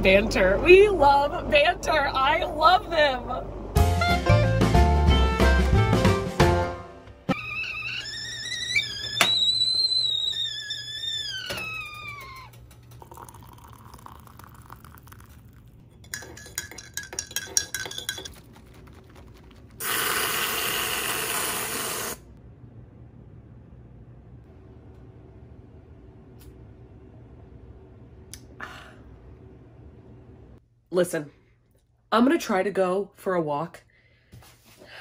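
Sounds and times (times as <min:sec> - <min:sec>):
kettle whistling: 0:07.3 - 0:14.8
spoon clinking against mug: 0:16.0 - 0:18.4
aerosol can hissing: 0:19.8 - 0:22.2.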